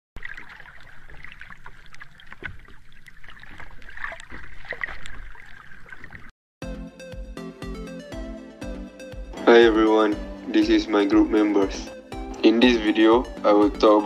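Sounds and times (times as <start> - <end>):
water splashing and sloshing: 0.2 - 6.4.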